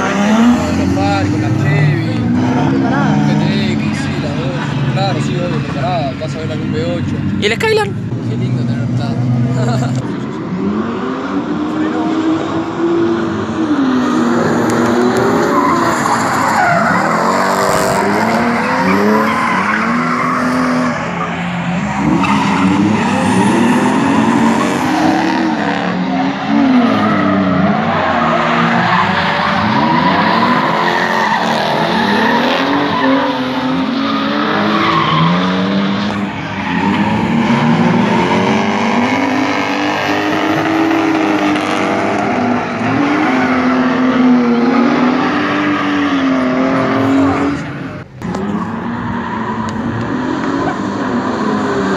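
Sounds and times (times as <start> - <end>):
car engines revving: 0.0 - 51.9
tyres screeching: 14.4 - 50.9.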